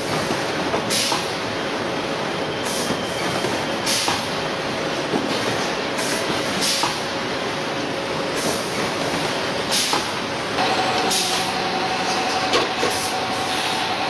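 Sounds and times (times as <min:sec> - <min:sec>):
machine running steadily: 0:10.5 - 0:14.0
steady whine: 0:10.6 - 0:14.0.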